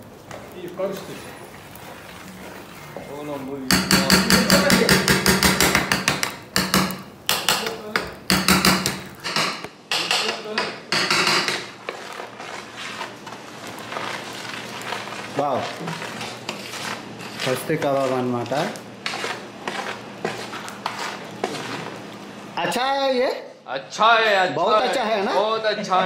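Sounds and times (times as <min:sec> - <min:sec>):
knife tapping clay pot: 0:03.7 - 0:11.7.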